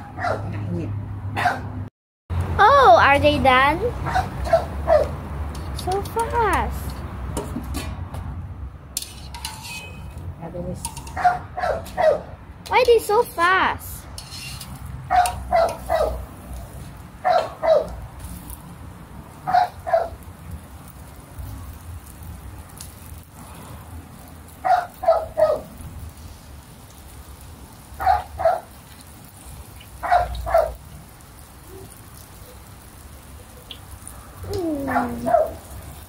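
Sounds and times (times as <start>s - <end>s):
dog barking: 0.0s - 0.6s, 1.4s - 1.8s, 4.0s - 5.2s, 11.2s - 12.3s, 15.1s - 16.3s, 17.2s - 18.0s, 19.5s - 20.2s, 24.6s - 25.7s, 28.0s - 28.7s, 30.0s - 30.8s, 34.9s - 35.7s
frying in hot oil sizzling: 2.3s - 36.0s.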